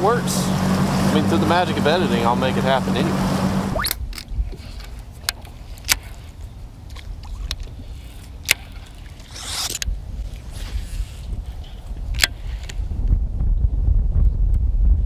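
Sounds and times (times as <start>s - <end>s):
wind rumble on microphone: 3.2s - 15.0s
brief swish: 9.3s - 9.8s.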